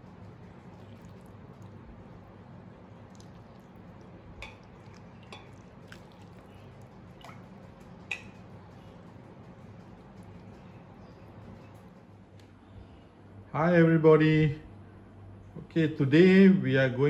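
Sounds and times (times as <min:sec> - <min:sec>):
low steady hum: 0:00.0 - 0:17.0
gravy dripping onto plate: 0:00.6 - 0:01.9, 0:02.8 - 0:08.5.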